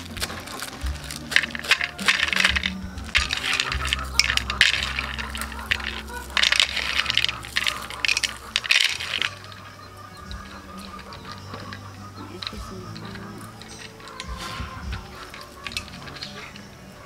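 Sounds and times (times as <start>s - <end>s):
peanuts rattling against a plate: 0.0s - 17.0s.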